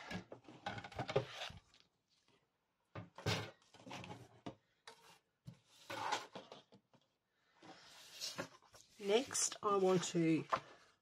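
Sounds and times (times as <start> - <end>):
paper rustling and scraping: 7.7 - 10.9.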